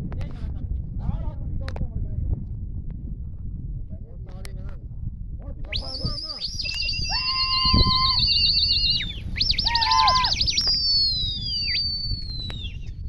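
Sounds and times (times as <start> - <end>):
loud human whistling: 5.8 - 13.0.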